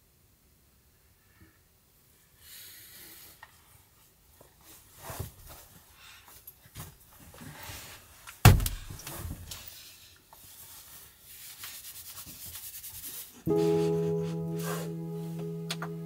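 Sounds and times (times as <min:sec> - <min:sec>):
soft piano music: 0:13.5 - 0:16.0.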